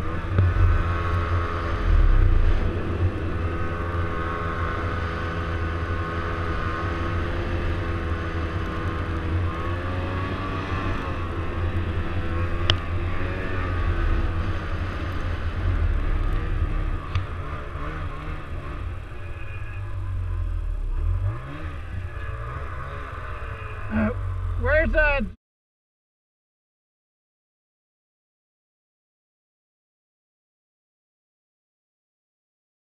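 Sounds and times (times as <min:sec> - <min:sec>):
snowmobile engine revving: 0:00.0 - 0:25.3.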